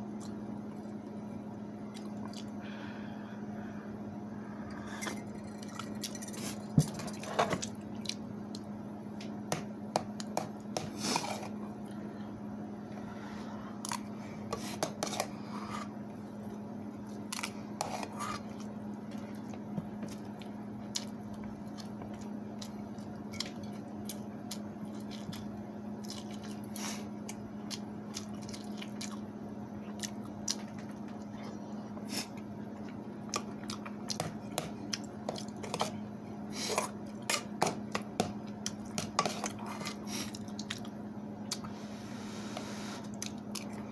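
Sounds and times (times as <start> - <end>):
steady low hum: 0.0 - 43.9
chewing and mouth sounds: 1.8 - 2.6, 7.6 - 8.7, 17.0 - 36.0, 36.6 - 41.7, 43.0 - 43.8.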